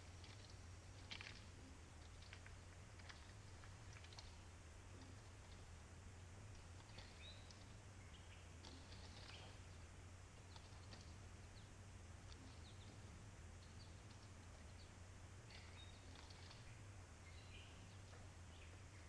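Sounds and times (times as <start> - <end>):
low steady hum: 0.0 - 19.0
faint bird chirps: 6.8 - 9.8, 10.4 - 19.0.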